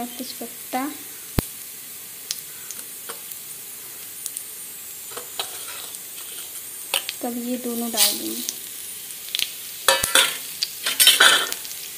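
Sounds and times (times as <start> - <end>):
hot oil sizzling: 0.0 - 11.9.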